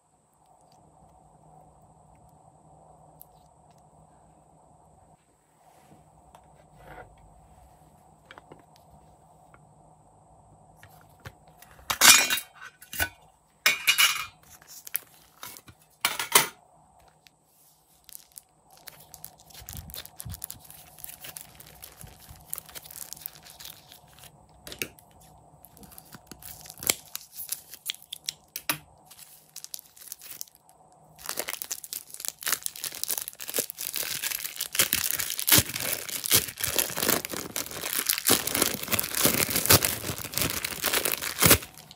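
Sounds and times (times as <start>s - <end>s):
plastic crinkling: 14.4s - 15.8s, 17.0s - 41.9s
plastic bag of slime squeezed: 18.0s - 24.3s, 25.6s - 28.5s, 29.1s - 30.6s, 31.2s - 41.9s.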